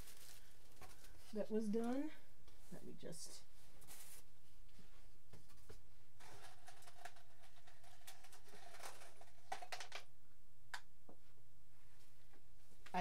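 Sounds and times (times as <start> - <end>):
rustling and scraping: 0.0 - 2.8, 3.6 - 9.7
low electrical hum: 0.0 - 13.0.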